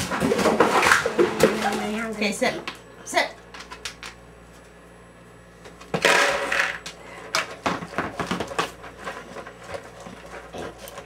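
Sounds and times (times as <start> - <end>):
dog crunching kibble: 8.3 - 11.0.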